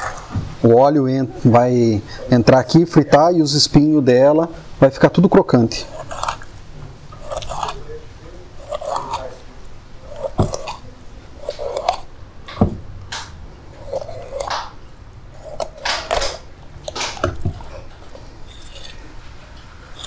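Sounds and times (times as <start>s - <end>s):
knife crunching through fish: 5.8s - 6.6s, 7.2s - 7.9s, 8.6s - 12.1s, 13.1s - 14.8s, 15.4s - 19.2s.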